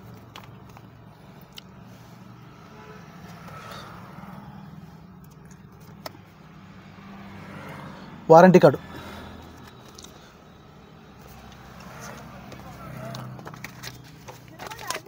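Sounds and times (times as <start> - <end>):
faint vehicle hum: 0.0 - 15.0
clicks and rustles of cardboard: 13.3 - 15.0.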